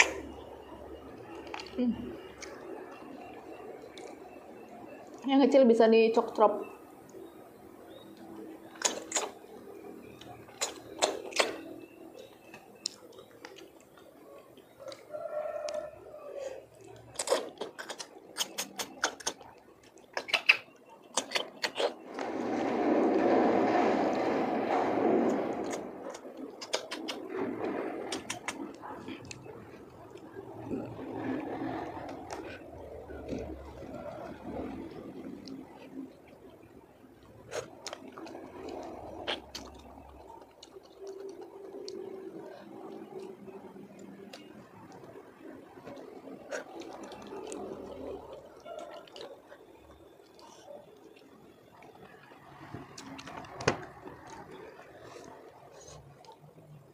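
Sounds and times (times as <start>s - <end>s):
wet chewing mouth noises: 7.0s - 15.8s, 16.4s - 22.0s, 25.3s - 56.8s
rushing noise: 22.0s - 28.8s.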